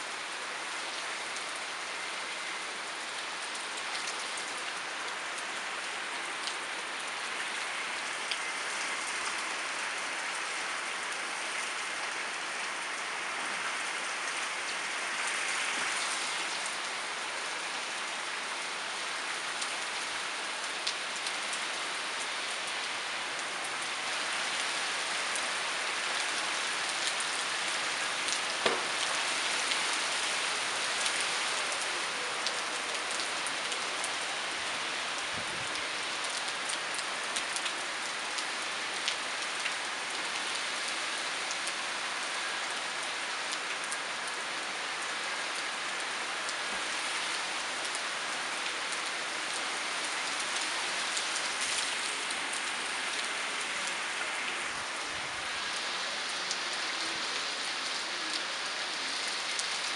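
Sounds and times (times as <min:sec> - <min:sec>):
raindrops tapping surfaces: 0:28.1 - 0:34.2
heavy rain hissing: 0:46.5 - 0:59.9.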